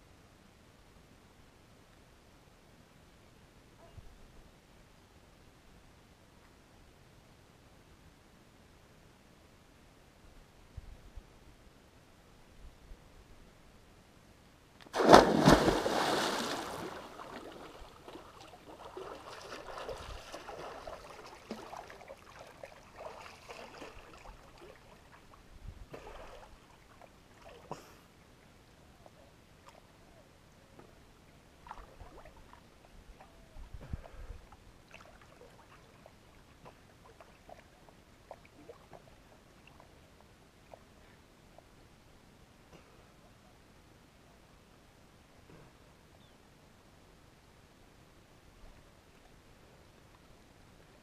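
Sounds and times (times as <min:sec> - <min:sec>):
loud splash into river: 0:14.9 - 0:18.2
water sloshing from swimming: 0:15.0 - 0:27.8, 0:31.6 - 0:40.0.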